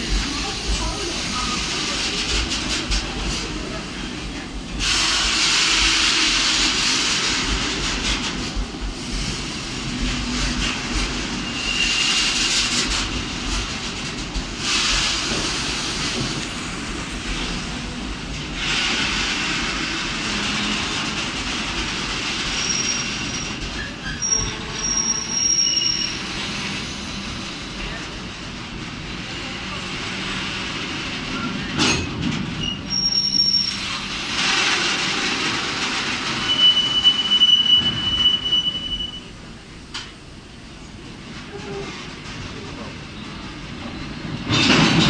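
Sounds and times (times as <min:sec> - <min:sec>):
train wheels rumbling on rails: 0:00.0 - 0:45.0
high wheel squeals: 0:11.3 - 0:12.4, 0:22.4 - 0:27.4, 0:32.6 - 0:34.1, 0:36.3 - 0:39.4.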